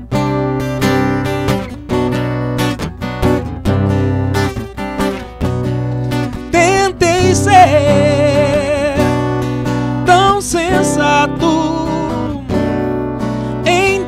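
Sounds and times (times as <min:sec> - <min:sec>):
acoustic guitar strumming: 0:00.0 - 0:14.0
man singing: 0:06.4 - 0:14.0.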